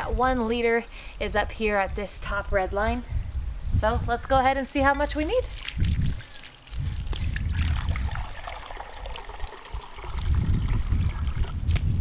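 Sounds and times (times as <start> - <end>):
water running into a glass cup: 5.5 - 11.6.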